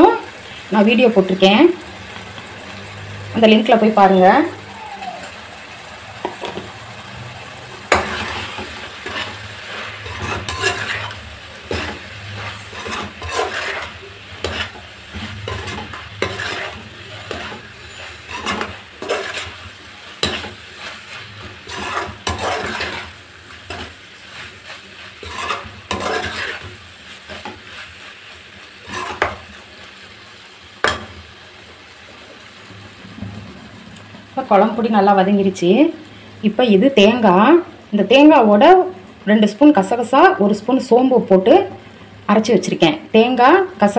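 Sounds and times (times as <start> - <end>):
spices sizzling in oil: 0.0 - 43.9
metal spoon scraping pan: 7.9 - 28.2, 28.8 - 29.5.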